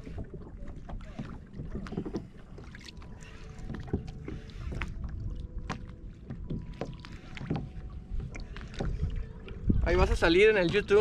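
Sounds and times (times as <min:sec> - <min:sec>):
water lapping against kayak hull: 0:00.0 - 0:11.0
wind rumble on microphone: 0:03.6 - 0:11.0.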